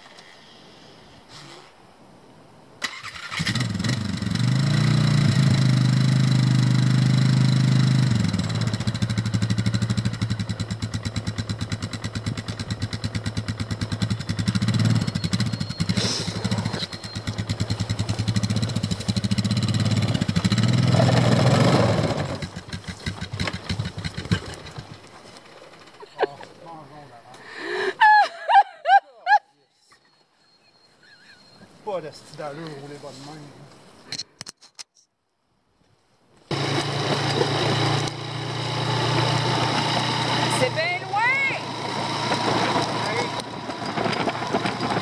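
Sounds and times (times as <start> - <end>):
atv engine running: 2.8 - 26.8, 36.5 - 45.0.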